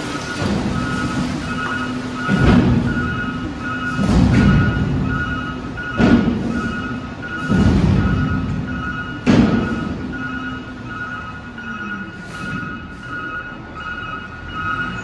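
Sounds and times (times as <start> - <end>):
truck mechanical hum: 0.0 - 15.0
warning alarm beeping: 0.0 - 15.0.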